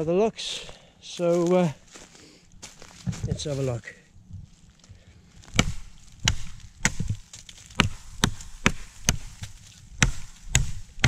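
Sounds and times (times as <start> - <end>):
machete chopping wood: 5.5 - 11.0.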